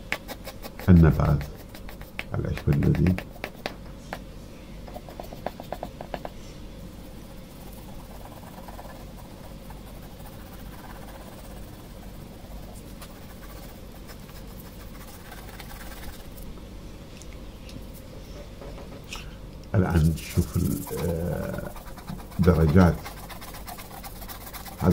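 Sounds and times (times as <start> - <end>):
pencil scratching on paper: 0.0 - 3.7, 4.9 - 6.3, 7.1 - 16.3, 20.0 - 24.9
steady low hum: 0.0 - 24.9.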